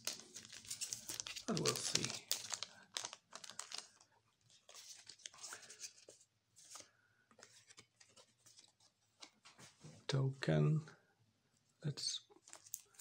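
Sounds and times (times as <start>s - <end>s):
cards rustling and clicking: 0.0s - 9.6s, 12.4s - 13.0s.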